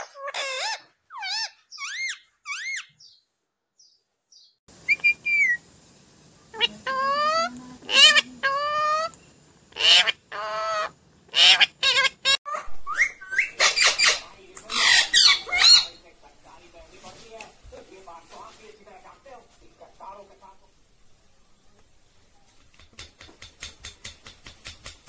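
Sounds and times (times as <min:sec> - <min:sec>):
parakeet calling: 0:00.0 - 0:03.2, 0:03.8 - 0:05.6, 0:06.5 - 0:16.1
parakeet squawking: 0:00.0 - 0:03.2, 0:06.6 - 0:16.1.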